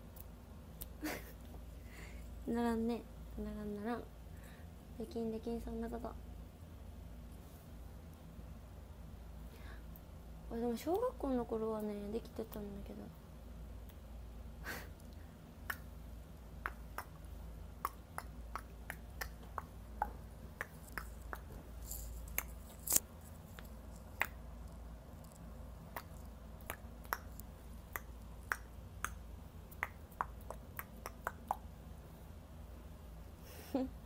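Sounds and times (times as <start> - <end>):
fingers snapping: 15.6 - 15.9, 16.6 - 17.2, 17.8 - 23.0, 23.6 - 24.4, 25.9 - 31.7.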